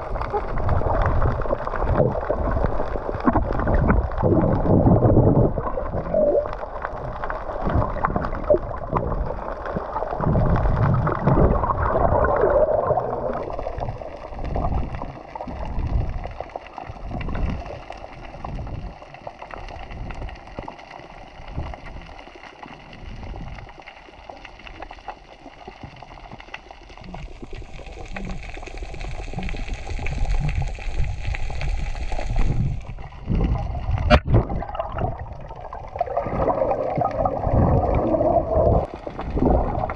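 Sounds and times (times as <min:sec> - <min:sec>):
muffled underwater thumps: 0:33.3 - 0:35.2.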